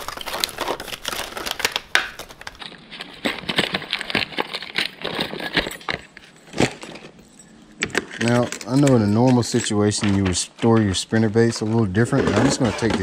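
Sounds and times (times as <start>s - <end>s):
plastic packaging crinkling: 0.0s - 7.3s.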